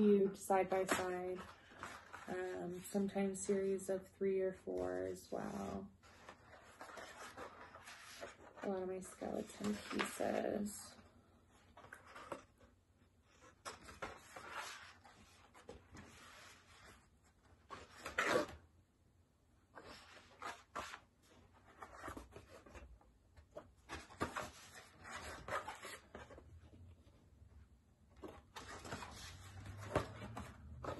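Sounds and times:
paper sheets rustling and sliding: 28.2 - 30.9.

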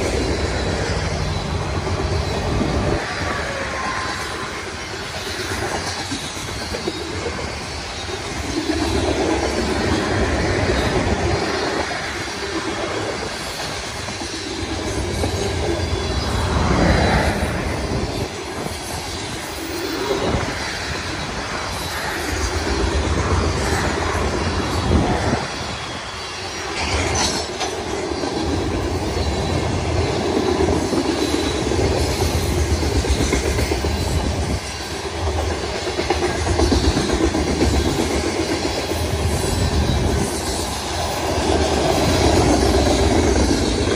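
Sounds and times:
freight train wheels rumbling: 0.0 - 43.9.

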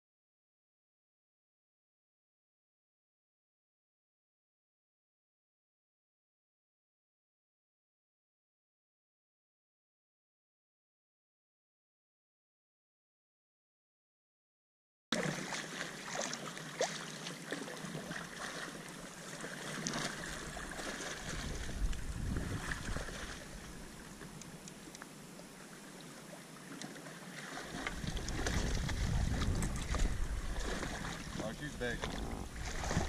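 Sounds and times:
water lapping and splashing: 15.1 - 33.0
wind buffeting microphone: 20.4 - 23.9, 27.9 - 33.0
small clicks and drips: 24.1 - 25.2, 26.7 - 27.0.

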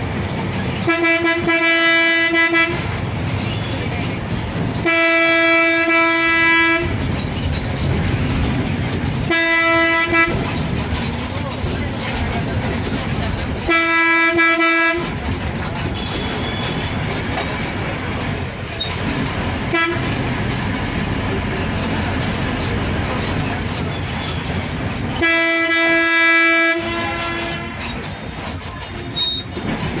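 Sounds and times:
bus engine and road rumble: 0.0 - 30.0
bus horn blast: 0.8 - 3.9, 4.8 - 7.0, 9.3 - 10.5, 13.7 - 15.2, 19.6 - 20.2, 25.2 - 27.9.

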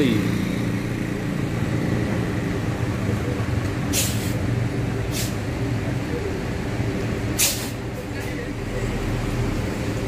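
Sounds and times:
bus engine running: 0.0 - 10.0
air brake hisses: 3.9 - 4.4, 5.1 - 5.4, 7.4 - 7.8.

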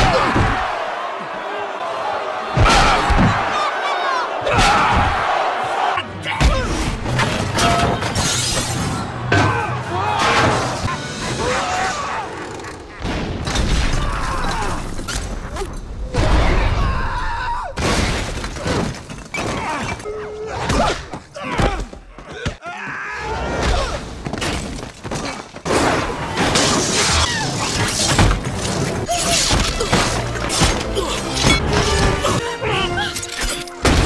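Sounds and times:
dramatic film score: 4.4 - 17.8, 25.1 - 34.0
crashes and shattering debris: 17.7 - 20.0.

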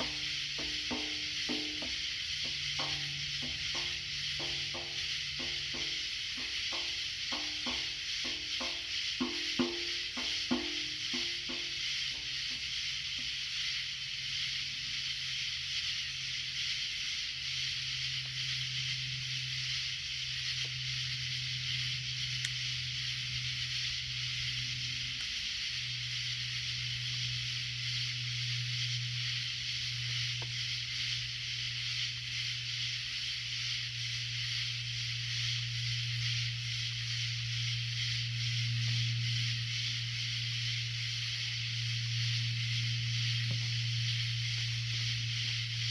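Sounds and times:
night insects buzzing: 0.0 - 45.9
low steady hum: 17.9 - 45.9.

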